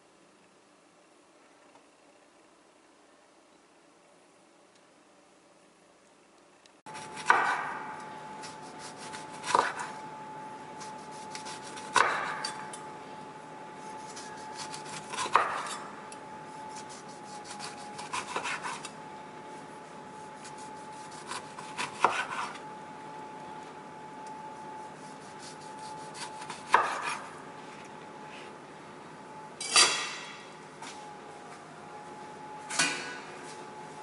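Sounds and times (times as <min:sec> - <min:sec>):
knife slicing lemon: 0:16.7 - 0:18.9, 0:25.0 - 0:27.3.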